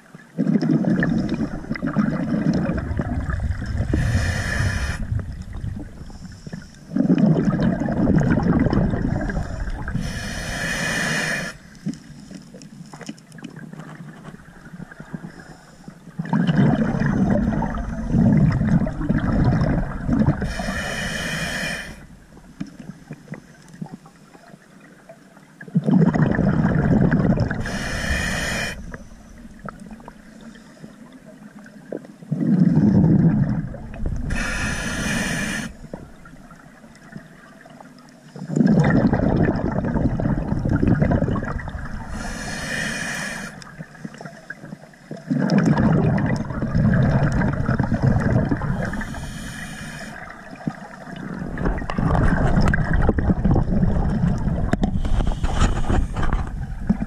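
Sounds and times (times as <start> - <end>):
diver exhaling bubbles underwater: 0.4 - 11.5, 16.2 - 22.0, 25.7 - 30.2, 32.3 - 37.2, 38.4 - 44.3, 45.1 - 57.0
regulator hiss: 10.0 - 11.7, 20.5 - 22.0, 27.6 - 29.4, 34.3 - 35.9, 42.1 - 43.7, 48.8 - 50.2.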